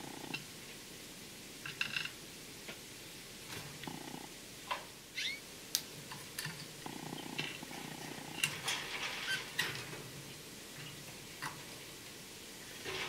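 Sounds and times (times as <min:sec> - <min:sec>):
low purr-like rumble: 0:03.8 - 0:04.4, 0:06.8 - 0:08.5
canary call notes: 0:05.2 - 0:05.4
canaries fluttering in cage: 0:08.2 - 0:10.2.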